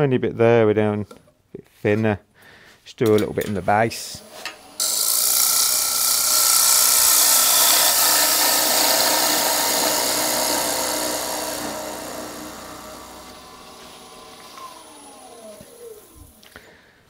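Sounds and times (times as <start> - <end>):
gouge scraping spinning wooden bowl: 5.0 - 16.1.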